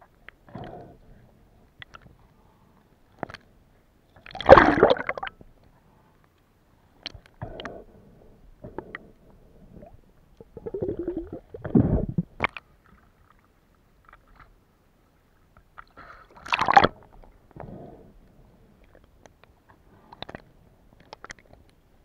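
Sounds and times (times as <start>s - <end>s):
water gurgling underwater: 4.2s - 5.4s, 9.8s - 12.5s.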